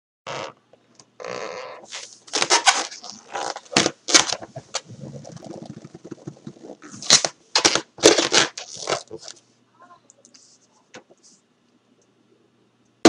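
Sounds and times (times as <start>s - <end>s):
hands rubbing a balloon: 1.5s - 9.4s.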